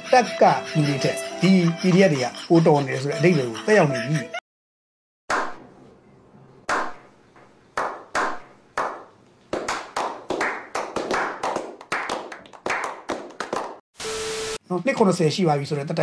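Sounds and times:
group of men clapping: 7.8s - 13.8s.

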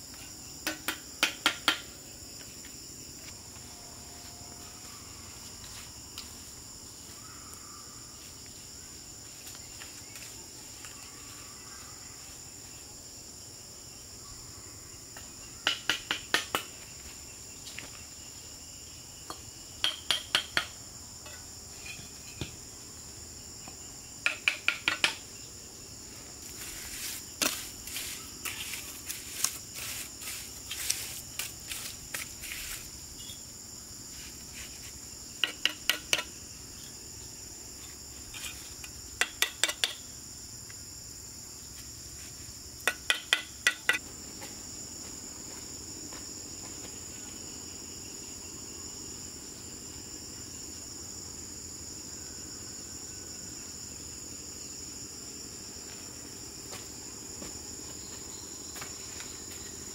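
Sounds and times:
insects buzzing: 0.0s - 59.9s
trowel tapping bricks: 35.4s - 36.3s, 39.2s - 40.0s.

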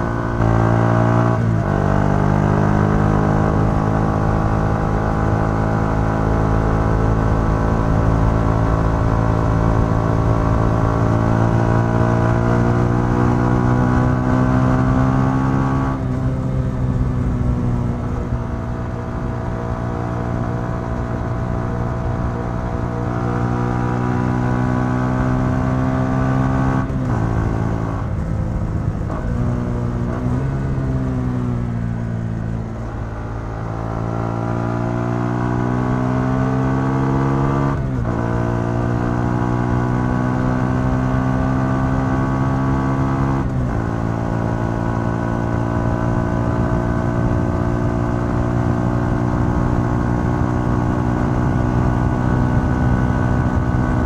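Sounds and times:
motorcycle engine under way: 0.0s - 54.0s
wind rumble: 16.0s - 24.7s, 26.8s - 33.5s.

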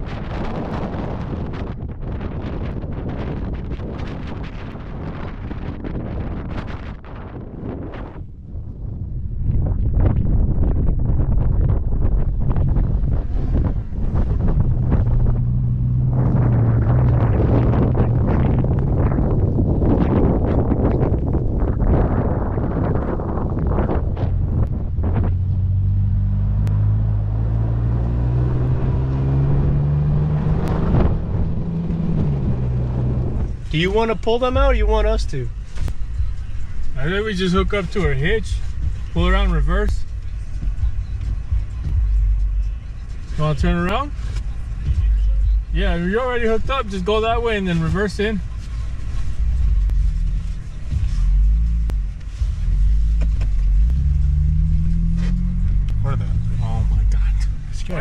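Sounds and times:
truck engine running: 11.4s - 21.8s, 23.2s - 58.0s.

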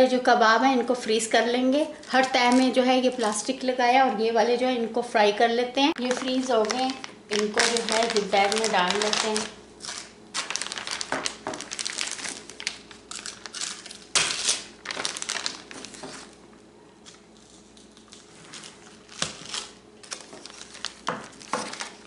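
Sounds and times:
plastic bag crinkling: 1.9s - 3.5s, 5.9s - 22.0s
sharp plastic crackle: 5.9s - 16.4s, 17.0s - 22.0s.

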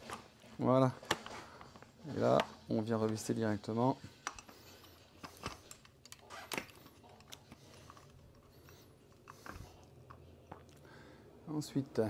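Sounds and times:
metal parts clicking and tapping: 4.2s - 10.2s.

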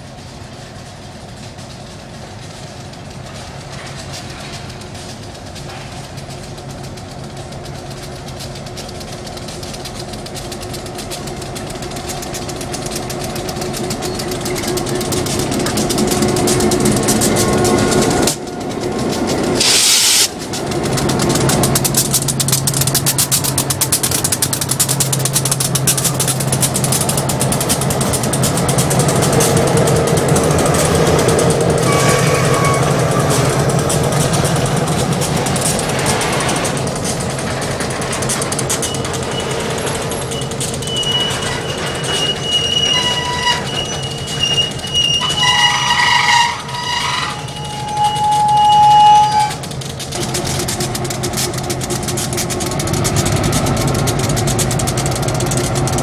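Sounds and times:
diesel locomotive engines: 0.0s - 56.0s
hopper cars rolling past: 0.0s - 56.0s
burst of hiss: 19.6s - 20.3s.

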